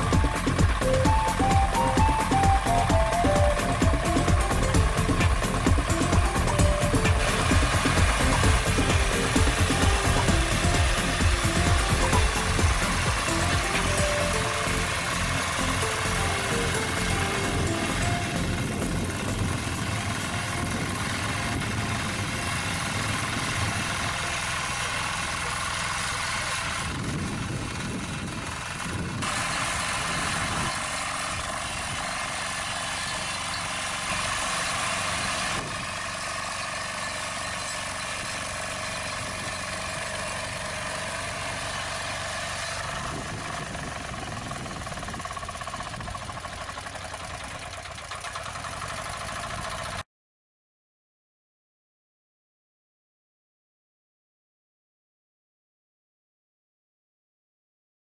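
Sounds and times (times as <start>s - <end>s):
power tiller engine running: 0.0s - 50.0s.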